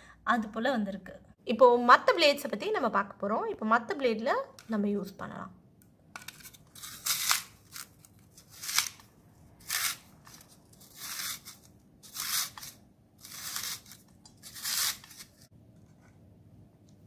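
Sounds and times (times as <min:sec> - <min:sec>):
spiral cutter scraping carrot: 0:06.3 - 0:15.5.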